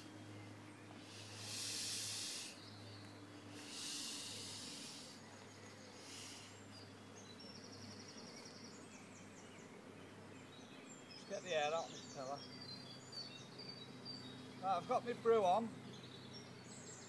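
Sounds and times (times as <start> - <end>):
air hissing out of pillow: 1.0 - 2.6, 3.5 - 5.2.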